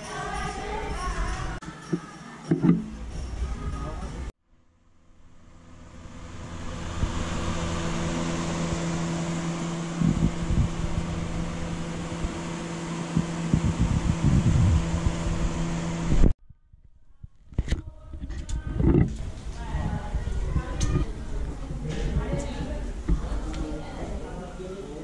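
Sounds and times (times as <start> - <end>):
electric fan hum: 4.8 - 16.4, 17.8 - 25.0
wind rumble on microphone: 9.8 - 23.6.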